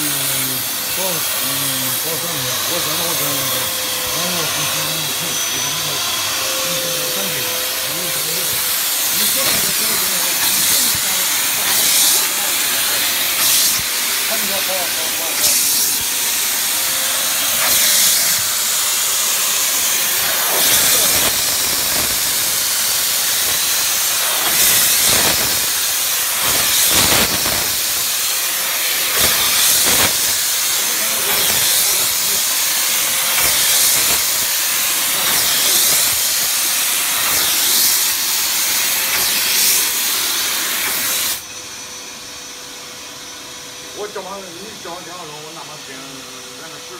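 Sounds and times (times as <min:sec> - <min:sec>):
steam hissing from wand: 0:00.0 - 0:42.2.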